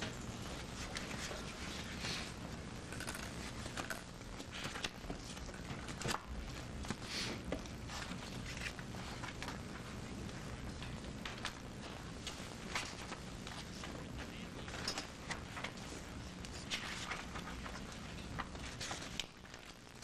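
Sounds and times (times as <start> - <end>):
steady low hum: 0.0 - 20.0
paper rustling: 0.5 - 2.4, 4.4 - 10.0, 11.2 - 19.8.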